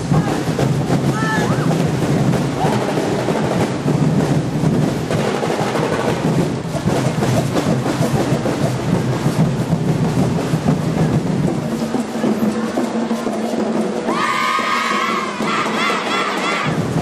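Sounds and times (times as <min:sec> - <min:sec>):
drum and percussion ensemble: 0:00.0 - 0:17.0.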